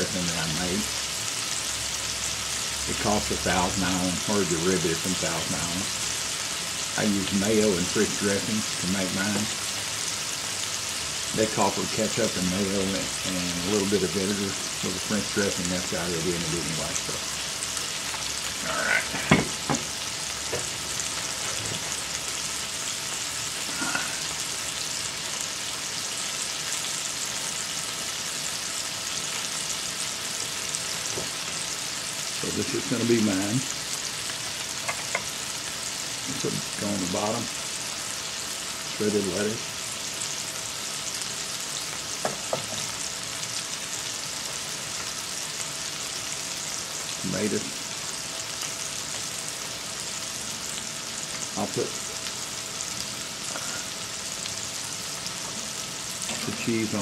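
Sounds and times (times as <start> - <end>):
burger patties sizzling: 0.0 - 57.0.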